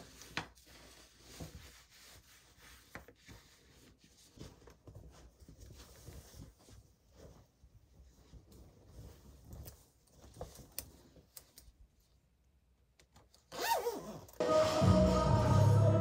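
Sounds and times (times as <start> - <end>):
fleece rustling: 0.0 - 12.1
zipper scratching and clicking: 13.5 - 14.4
loud background music: 14.4 - 16.0.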